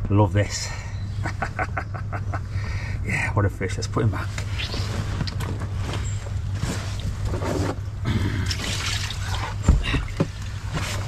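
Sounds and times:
water trickling and splashing: 8.4s - 11.0s.

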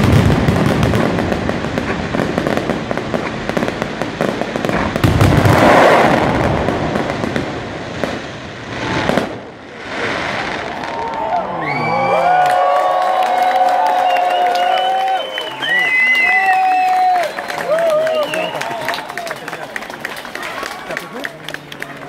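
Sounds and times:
fireworks crackling bangs: 0.0s - 11.6s.

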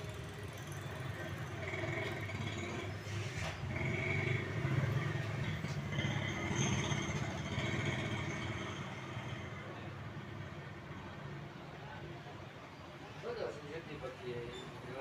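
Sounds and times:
vehicle engine running: 0.0s - 9.7s.

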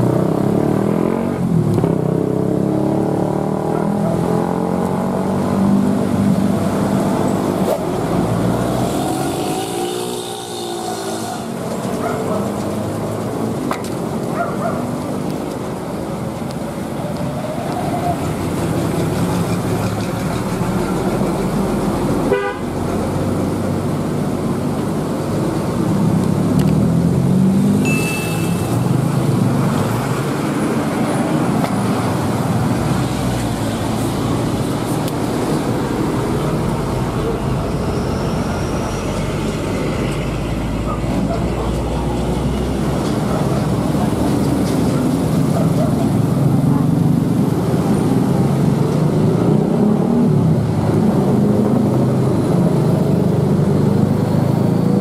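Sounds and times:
road traffic passing: 0.0s - 55.0s
vehicle horn tooting: 22.3s - 22.7s, 27.8s - 28.8s.

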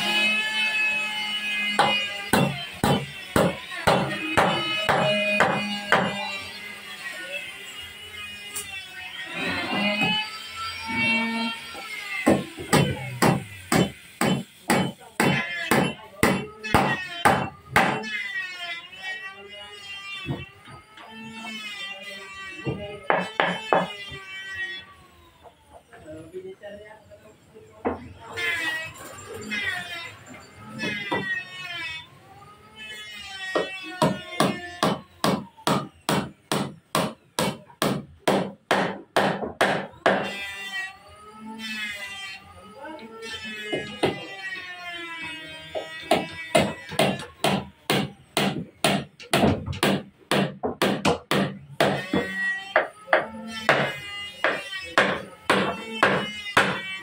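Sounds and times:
hammer striking wooden beam: 1.7s - 6.2s, 12.2s - 18.1s, 22.7s - 24.0s, 33.5s - 40.4s, 45.7s - 57.0s.

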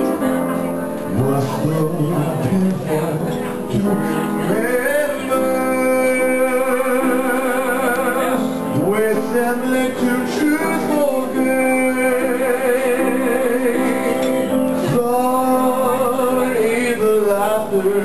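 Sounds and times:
instrumental accompaniment: 0.0s - 18.0s
person singing with vibrato: 0.0s - 18.0s.

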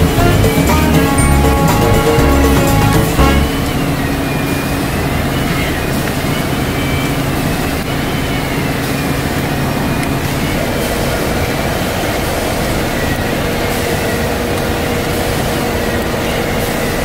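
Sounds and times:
higher steady hum: 0.0s - 6.2s.

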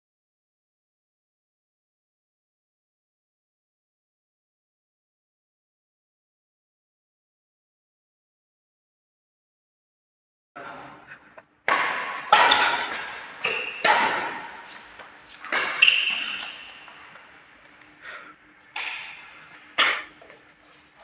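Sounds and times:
badminton racket hitting shuttlecock: 11.7s - 18.0s, 18.6s - 21.0s.

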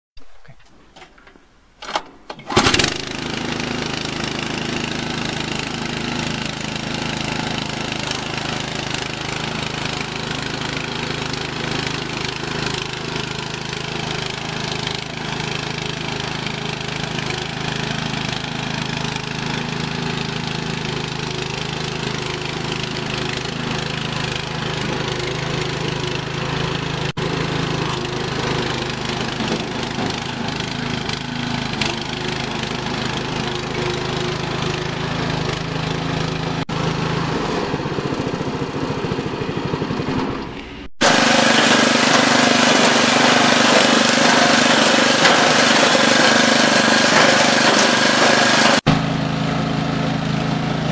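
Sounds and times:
loud engine burst: 2.5s - 3.8s, 34.5s - 50.6s
small engine running: 2.5s - 50.9s.

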